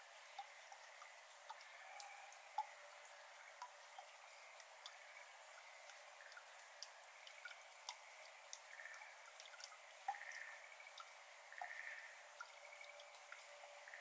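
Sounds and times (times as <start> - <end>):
water drops dripping: 0.0 - 14.0
water plop: 3.6 - 14.0.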